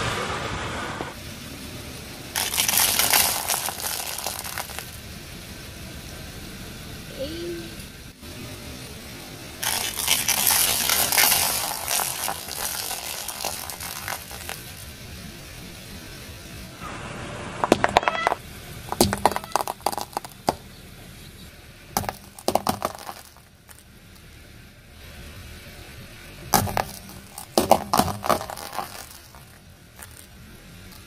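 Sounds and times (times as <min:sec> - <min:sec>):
candy cracking under car tyre: 0:02.3 - 0:05.0, 0:09.6 - 0:16.1, 0:17.6 - 0:20.7, 0:21.9 - 0:24.3, 0:26.4 - 0:31.0.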